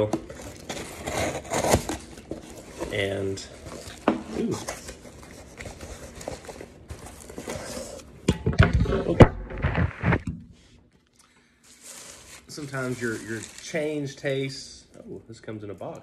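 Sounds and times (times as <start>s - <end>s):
paper and cardboard rustling: 0.0s - 8.1s, 11.7s - 14.2s.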